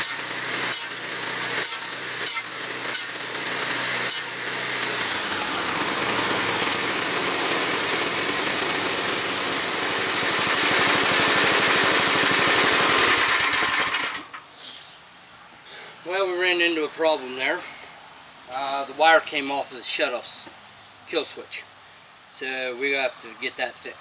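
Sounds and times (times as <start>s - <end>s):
single-cylinder engine running: 0.0s - 14.4s.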